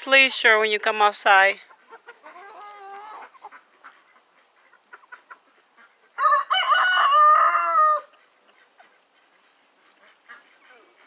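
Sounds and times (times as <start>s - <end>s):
chickens clucking: 0.0s - 11.0s
rooster crowing: 6.2s - 8.1s.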